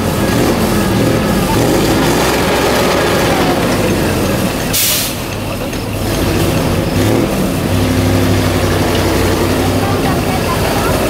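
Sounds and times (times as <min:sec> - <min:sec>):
truck engine under load: 0:00.0 - 0:11.0
air hiss: 0:04.7 - 0:05.3.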